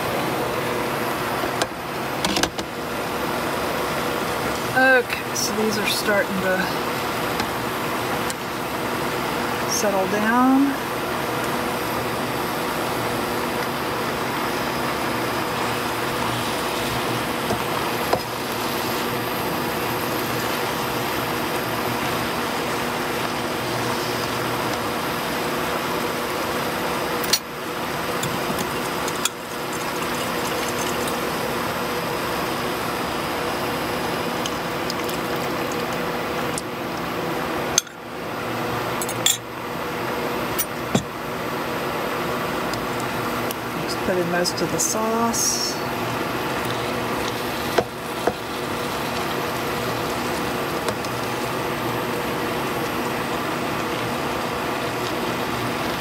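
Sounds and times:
liquid bubbling: 13.8 - 36.6, 45.9 - 56.0.

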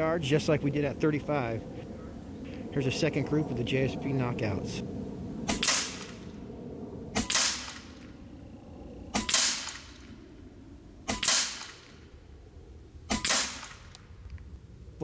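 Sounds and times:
air rifle shots: 5.5 - 6.4, 7.1 - 8.1, 9.1 - 10.1, 11.1 - 12.0, 13.1 - 14.0.

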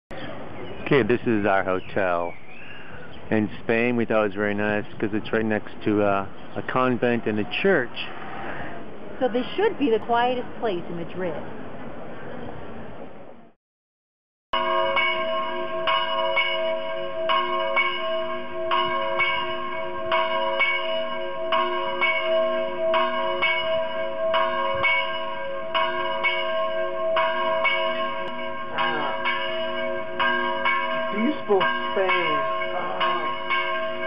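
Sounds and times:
church bells pealing: 14.6 - 34.0.

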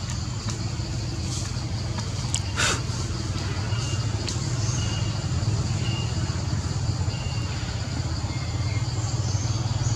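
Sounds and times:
high insect drone: 0.0 - 9.9
low motor hum: 0.0 - 9.9.

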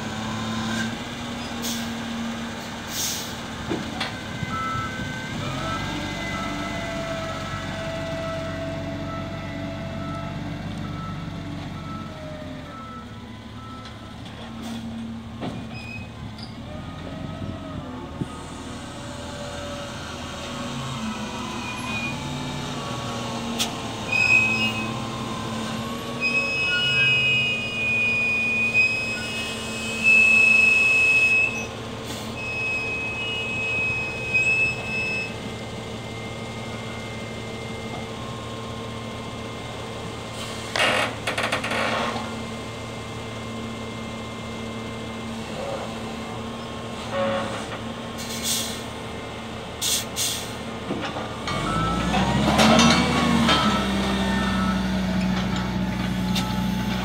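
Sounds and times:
diesel engine running: 31.1 - 57.0.

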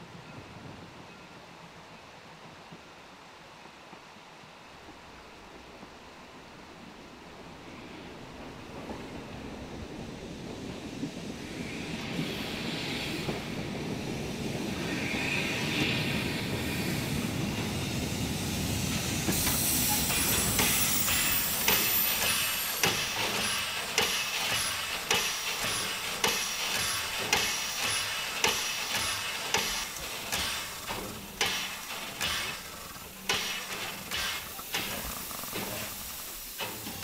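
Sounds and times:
steam hissing: 7.5 - 37.0
steam locomotive puffs: 10.0 - 37.0.

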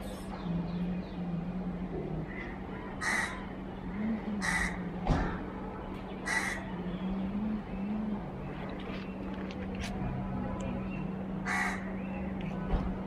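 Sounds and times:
steady low hum: 0.0 - 13.0
crow cawing: 2.3 - 3.5, 4.4 - 5.4, 6.2 - 6.7, 11.4 - 11.9.

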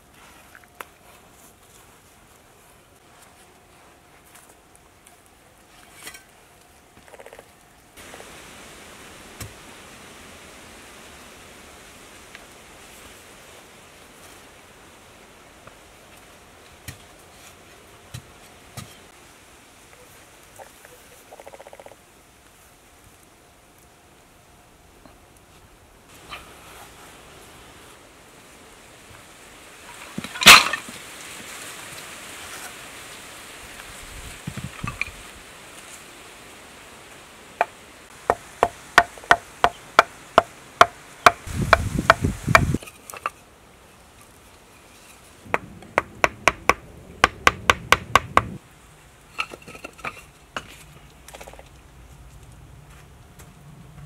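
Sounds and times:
steady rushing hiss: 0.0 - 54.0
bamboo strips clattering on dirt: 4.2 - 8.2, 29.8 - 32.8, 33.8 - 35.9, 37.6 - 46.2, 49.3 - 53.6.

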